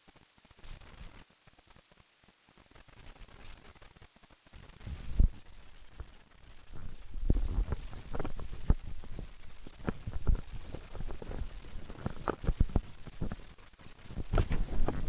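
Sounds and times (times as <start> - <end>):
wind rumble on microphone: 4.7 - 15.0.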